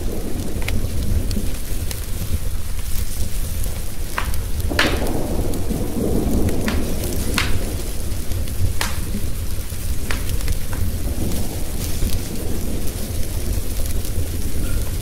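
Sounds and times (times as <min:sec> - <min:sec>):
steady rain: 0:00.0 - 0:15.0
thunder rolling: 0:00.0 - 0:15.0
wood fire crackling and popping: 0:00.0 - 0:15.0.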